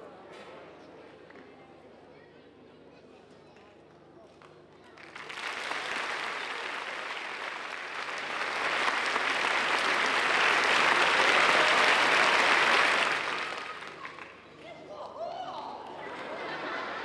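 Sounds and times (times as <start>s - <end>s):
audience applause: 5.0s - 14.5s.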